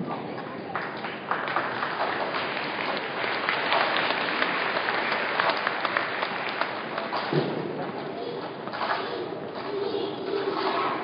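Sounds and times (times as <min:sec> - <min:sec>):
audience applauding: 0:00.8 - 0:07.2.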